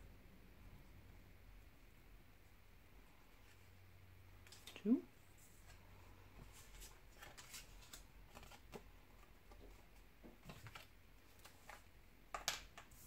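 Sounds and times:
cardstock rustling and tapping: 0:06.6 - 0:13.0.

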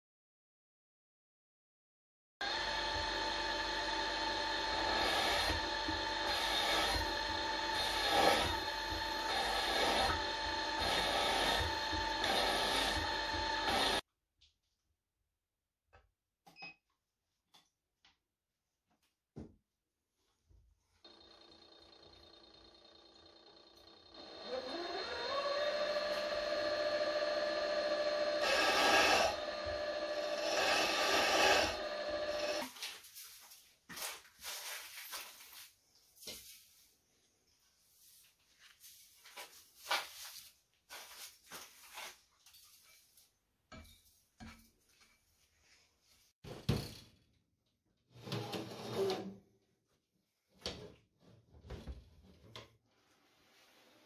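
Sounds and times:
end mill cutting aluminium: 0:02.4 - 0:14.0, 0:24.2 - 0:32.7
milling spindle whine: 0:02.4 - 0:14.0, 0:21.1 - 0:32.6.

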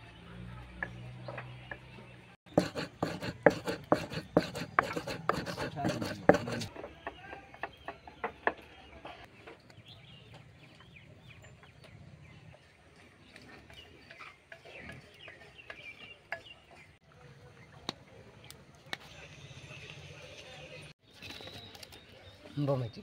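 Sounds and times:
grains scraping in metal bowl: 0:02.5 - 0:06.7.

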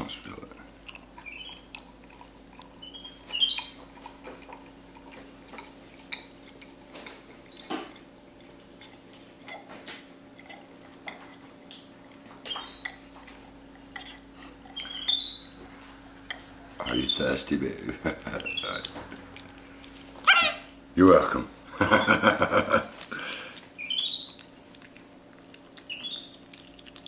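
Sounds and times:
monkey slurping water: 0:18.0 - 0:20.2.

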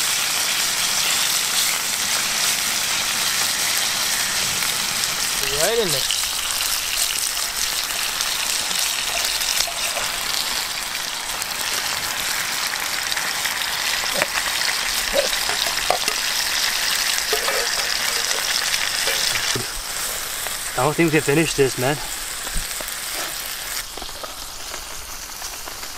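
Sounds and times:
food sizzling in a pan: 0:00.0 - 0:25.9.

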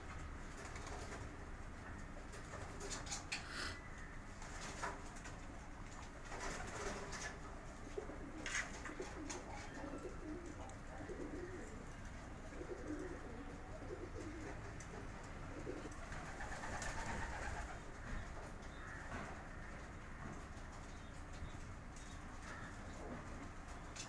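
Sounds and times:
pigeons cooing: 0:06.7 - 0:21.2.

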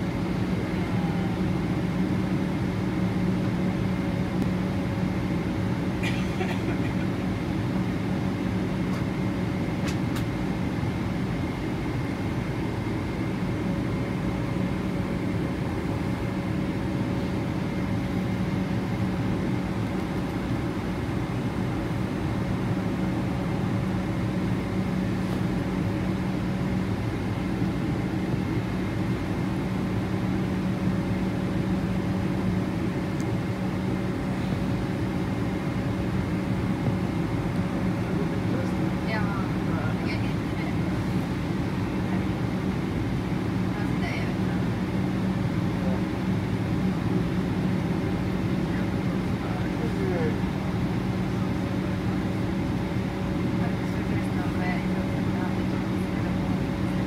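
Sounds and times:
jet engines humming in cabin: 0:00.0 - 0:57.0.

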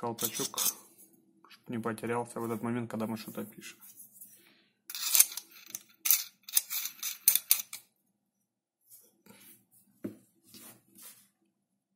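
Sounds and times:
metal pen clicks and scrapes: 0:00.2 - 0:00.8, 0:04.9 - 0:07.8
soft taps on cloth mat: 0:10.0 - 0:10.3.

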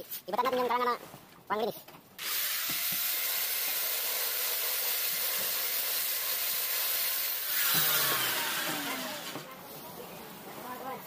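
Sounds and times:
angle grinder cutting plastic pipe: 0:02.2 - 0:09.5.

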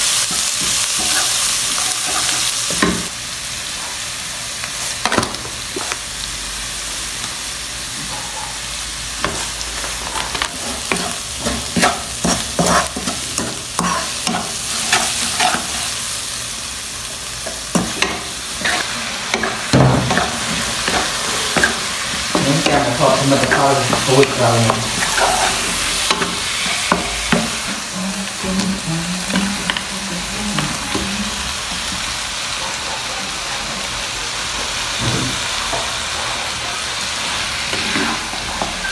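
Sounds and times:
food sizzling in a wok: 0:00.0 - 0:38.9
spatula scraping a pan: 0:09.2 - 0:16.0, 0:17.5 - 0:27.8, 0:37.7 - 0:38.9.

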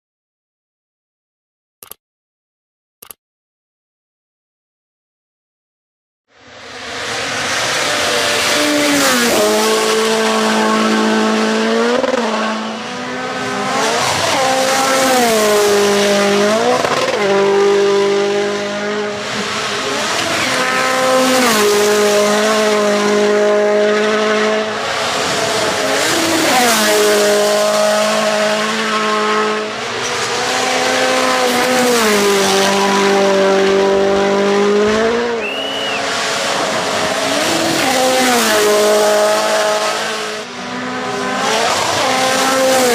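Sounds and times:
rally car engines at full throttle: 0:06.4 - 0:42.9.

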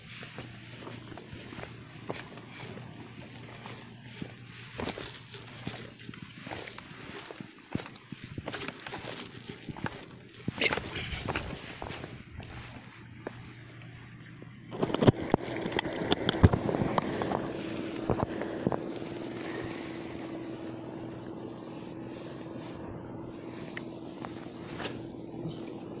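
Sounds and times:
steady low hum: 0:00.0 - 0:26.0
wind: 0:00.0 - 0:26.0
sea noise: 0:12.7 - 0:26.0.

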